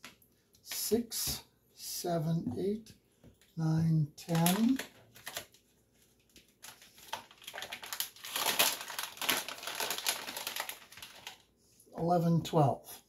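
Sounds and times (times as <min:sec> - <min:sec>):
packaging rustling and crackling: 0:04.3 - 0:11.5.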